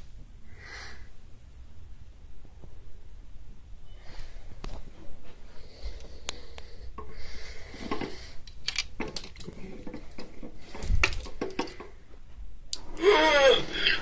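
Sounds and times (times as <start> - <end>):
handling clicks and knocks: 7.9 - 12.0.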